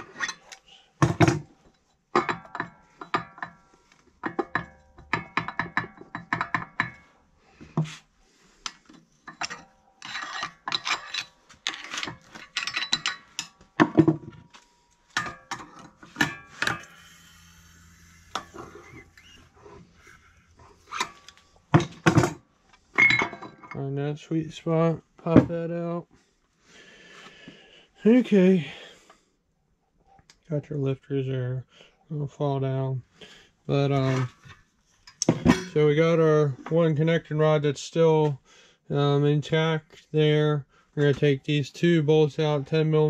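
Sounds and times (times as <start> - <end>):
pliers clicking and scraping metal: 8.6 - 13.6.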